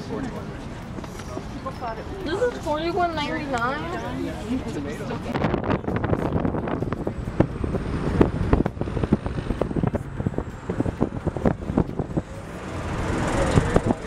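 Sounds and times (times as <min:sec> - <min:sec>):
road rumble: 0:00.0 - 0:14.0
wind noise: 0:04.7 - 0:14.0.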